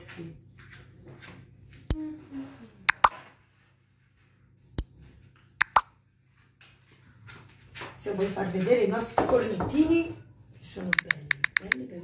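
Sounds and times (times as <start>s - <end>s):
sharp clicks and taps: 2.9s - 3.1s, 5.6s - 5.8s, 10.9s - 11.8s.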